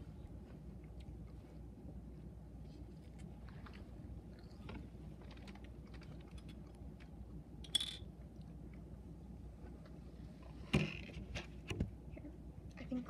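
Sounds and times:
people chewing snacks: 2.8 - 7.2.

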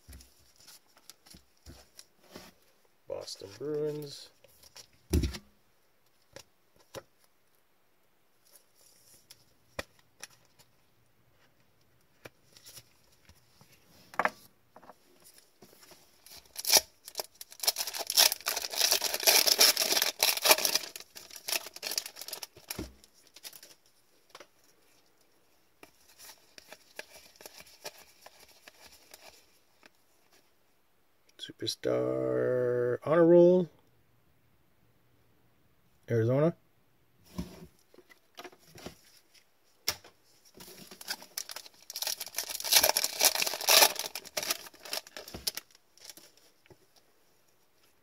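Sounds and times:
cards rustling: 15.3 - 24.9, 40.5 - 46.5
card pack wrapper tearing: 16.3 - 23.8, 40.8 - 46.3.

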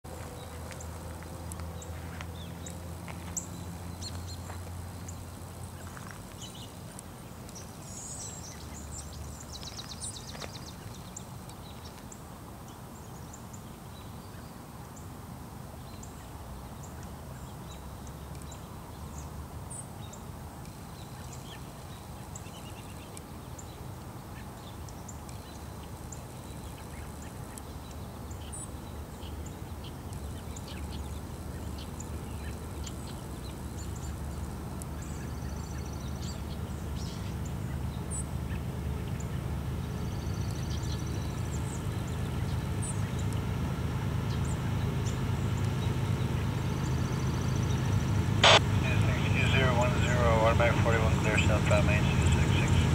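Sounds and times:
songbirds chirping: 0.0 - 52.9
diesel locomotive rumble: 31.0 - 52.9.

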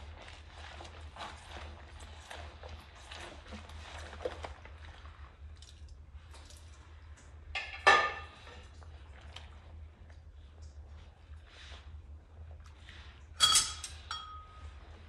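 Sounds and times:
sponge scrubbing in soapy water: 0.0 - 7.5, 8.2 - 13.4
dish clinking: 13.4 - 14.6.

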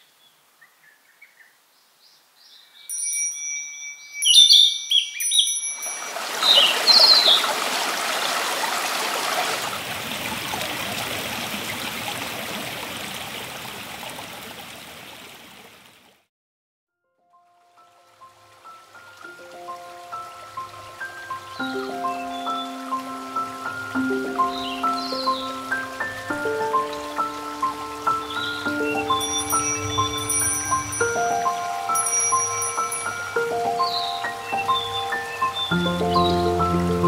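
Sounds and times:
birds chirping: 3.9 - 8.4, 20.3 - 37.0
stream rushing over rocks: 5.2 - 16.1, 17.6 - 37.0.

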